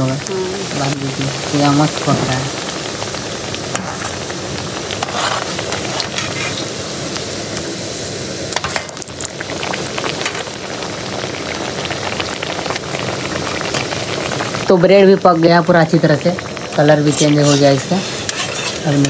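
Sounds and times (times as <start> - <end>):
oil sizzling while deep-frying: 0.0 - 19.0
spoon scraping against pan: 5.0 - 6.7, 17.1 - 19.0.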